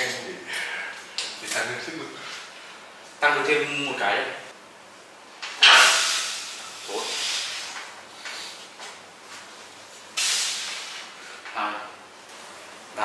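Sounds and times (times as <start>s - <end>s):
forceful hissing breaths: 5.6s - 8.7s, 10.1s - 11.5s.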